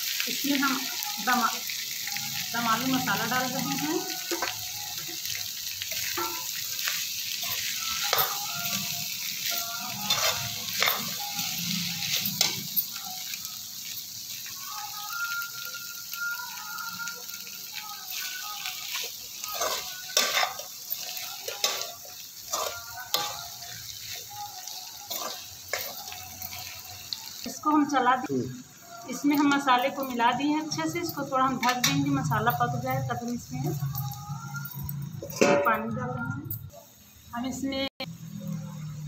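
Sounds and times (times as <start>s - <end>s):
potatoes sizzling in a pan: 0.0s - 39.0s
metal spatula scraping a pan: 5.9s - 13.0s, 18.9s - 26.8s, 35.2s - 35.9s.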